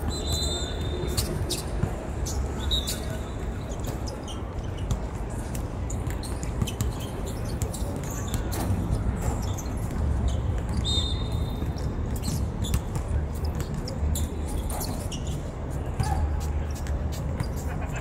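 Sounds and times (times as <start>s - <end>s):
brief high squeak: 0.1s - 4.8s, 13.5s - 16.4s.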